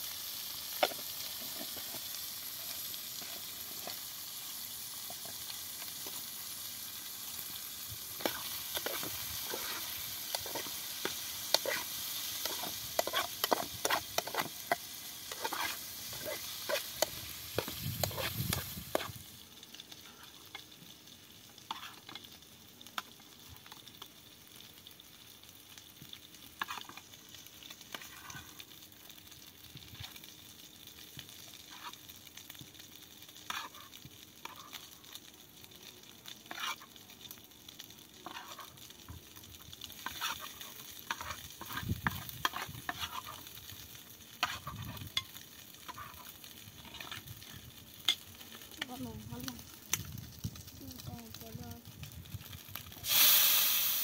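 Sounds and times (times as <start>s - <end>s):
meat sizzling in a pan: 0.0s - 54.0s
metal spoon scraping a pan: 8.2s - 19.2s, 21.7s - 22.3s, 26.6s - 27.0s, 27.9s - 28.5s, 33.5s - 34.8s, 36.5s - 36.9s, 38.2s - 38.7s, 40.0s - 43.5s, 44.4s - 47.2s.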